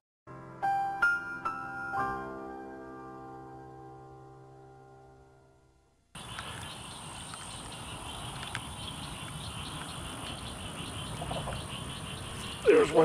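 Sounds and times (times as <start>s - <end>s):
sustained piano chord: 0.3s - 6.0s
insects chirring: 6.2s - 13.0s.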